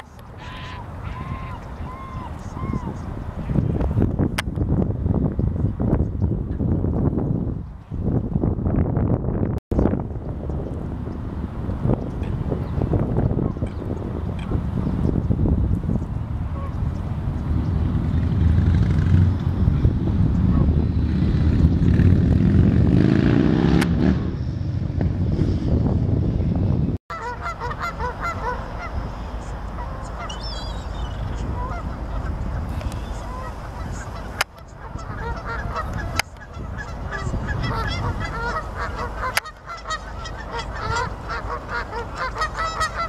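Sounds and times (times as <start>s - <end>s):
flock of gulls calling: 0.0s - 3.6s, 27.1s - 43.0s
low rumble with rising tone: 3.5s - 27.0s.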